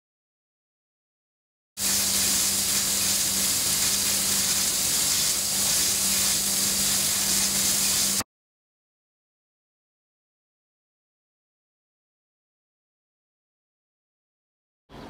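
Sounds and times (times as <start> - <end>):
churning water hissing: 1.8 - 8.2.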